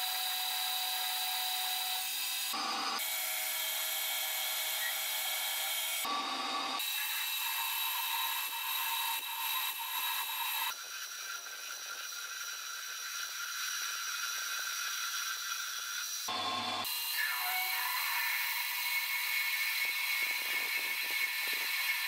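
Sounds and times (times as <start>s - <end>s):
metal lathe drilling whine: 0.0s - 10.7s, 15.1s - 22.0s.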